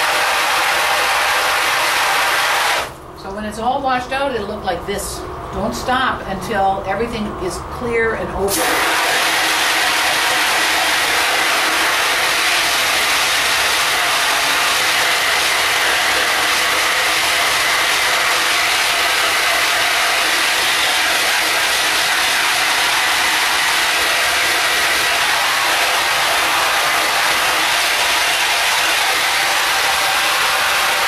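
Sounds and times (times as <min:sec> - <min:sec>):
hose spraying water on mesh: 0:08.6 - 0:31.0.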